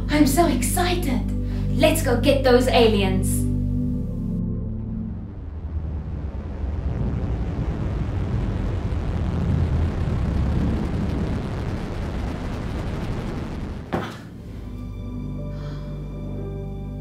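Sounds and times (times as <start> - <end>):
spaceship low rumble: 3.4 - 17.0.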